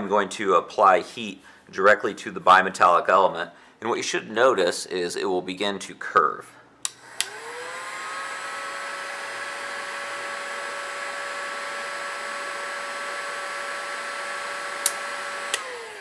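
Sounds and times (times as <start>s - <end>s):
heat gun motor whine: 6.9s - 16.0s.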